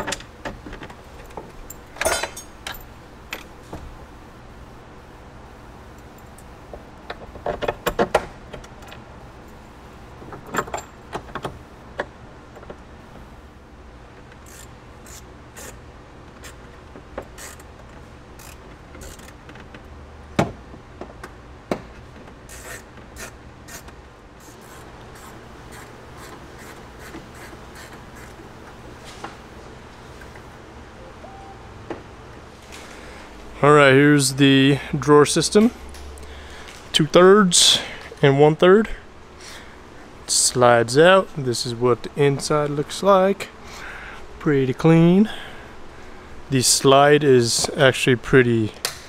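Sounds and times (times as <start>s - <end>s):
tools and bolts clinking: 1.2s - 3.5s.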